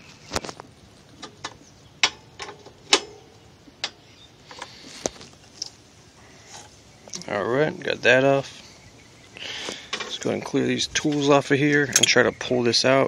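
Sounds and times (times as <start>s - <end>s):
wrench clinking on metal bolt: 11.9s - 12.2s.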